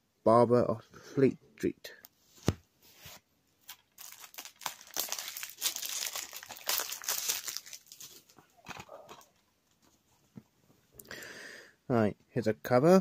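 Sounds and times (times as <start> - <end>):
plastic packaging crinkling: 3.6 - 9.4.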